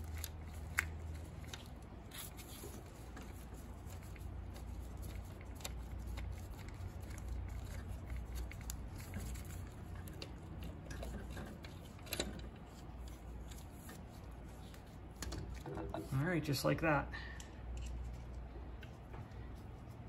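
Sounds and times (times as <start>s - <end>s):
socket wrench clicking and scraping: 8.4s - 14.0s, 17.4s - 18.4s.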